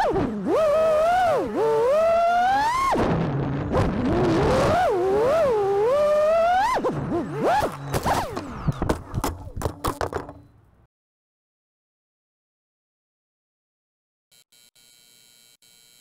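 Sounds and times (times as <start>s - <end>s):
drone motors whining: 0.0s - 10.6s
sharp clicks or knocks: 7.6s - 10.6s.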